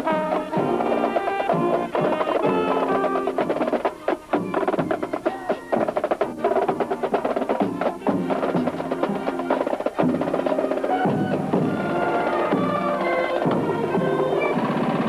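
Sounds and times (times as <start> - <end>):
sustained brass notes: 0.0 - 3.9, 6.4 - 15.0
snare and bass drums: 0.0 - 15.0.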